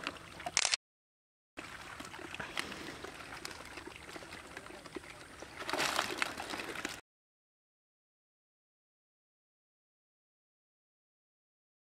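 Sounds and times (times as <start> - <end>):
muddy water sloshing and splashing: 0.0 - 0.6, 1.6 - 7.0.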